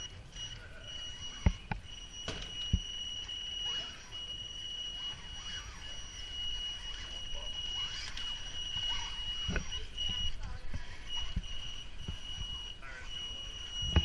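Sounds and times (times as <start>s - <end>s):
electric motor whine: 0.0s - 14.0s.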